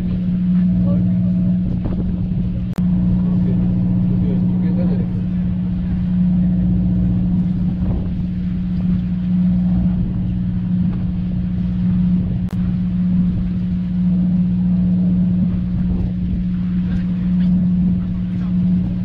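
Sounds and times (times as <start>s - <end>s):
boat machinery droning: 0.0s - 19.0s.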